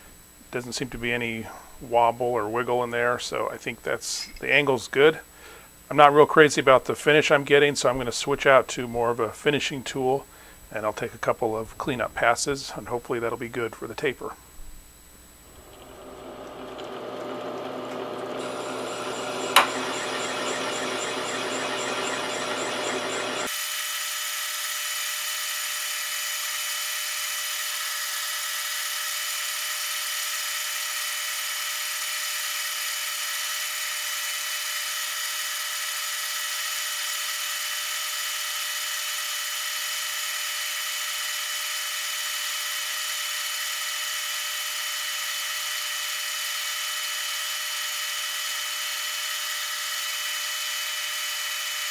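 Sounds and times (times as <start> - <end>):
metal lathe whining: 15.6 - 26.7, 32.2 - 51.9
sharp click: 19.5 - 19.8.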